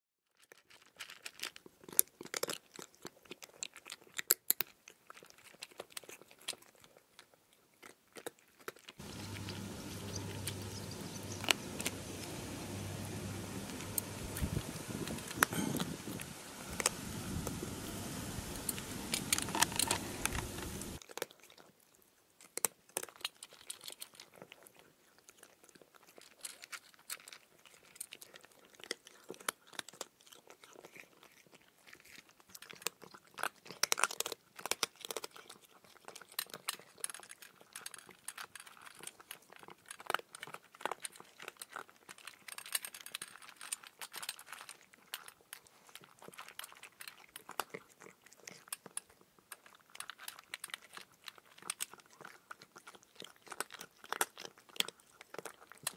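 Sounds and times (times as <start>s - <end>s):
outdoor noise: 9.0s - 21.0s
squirrel cracking seeds: 9.0s - 21.1s.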